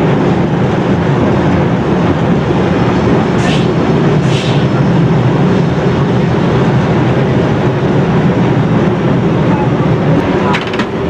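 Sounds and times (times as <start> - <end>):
tram wheels rumbling on rails: 0.0 - 11.0.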